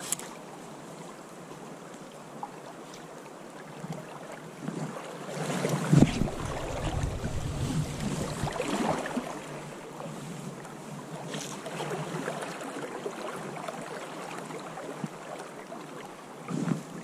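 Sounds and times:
fast river current rushing: 2.2 - 17.0
wind buffeting the microphone: 5.8 - 9.3.

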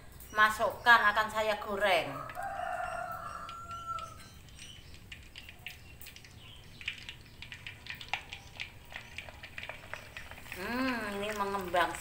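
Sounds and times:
cracker frying in hot oil: 0.0 - 12.0
rooster crowing: 2.0 - 4.4.

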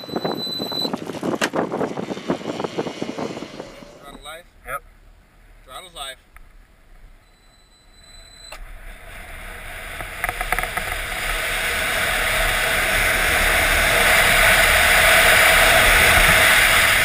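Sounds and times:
wind rushing: 0.0 - 4.4
road noise: 0.0 - 17.0.

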